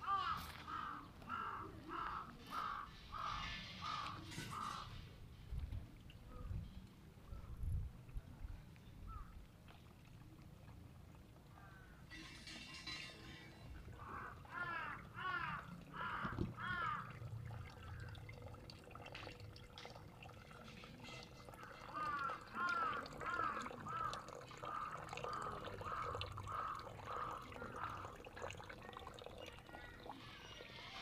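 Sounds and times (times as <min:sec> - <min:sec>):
crow cawing: 0:00.0 - 0:04.9, 0:14.0 - 0:17.2, 0:21.6 - 0:28.3.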